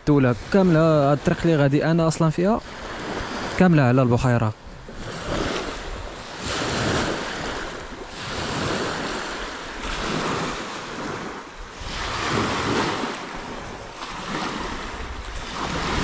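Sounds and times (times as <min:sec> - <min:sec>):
small waves lapping on shore: 0:00.0 - 0:16.0
wind buffeting microphone: 0:04.5 - 0:16.0.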